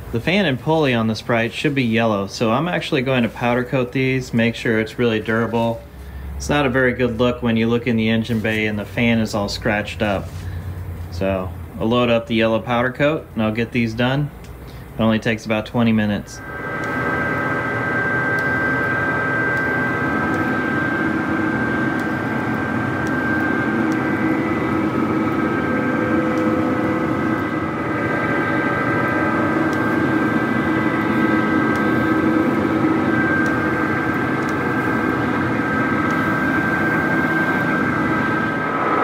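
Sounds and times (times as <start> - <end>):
steady machine hum: 0.0 - 39.0
rush of air: 16.4 - 18.6, 36.5 - 39.0.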